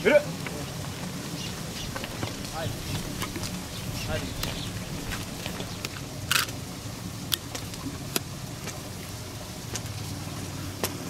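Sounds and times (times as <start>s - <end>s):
steady low hum: 0.0s - 11.0s
footsteps on paved road: 0.8s - 6.5s.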